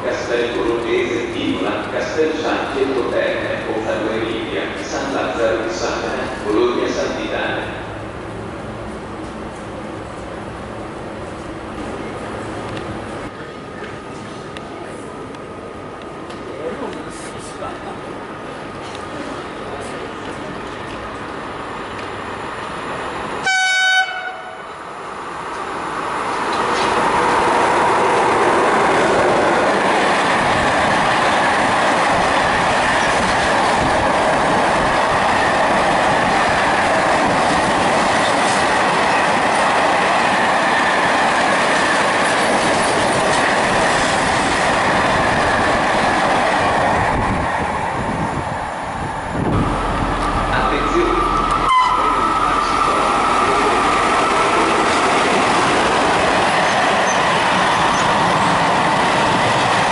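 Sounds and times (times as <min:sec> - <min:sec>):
freight train wheels on rails: 0:00.0 - 0:59.9
locomotive horn blast: 0:23.4 - 0:24.7, 0:50.0 - 0:52.9.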